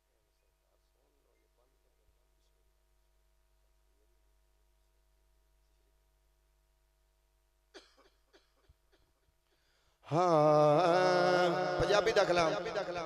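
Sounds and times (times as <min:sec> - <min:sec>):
man chanting into microphone: 0:10.1 - 0:13.0.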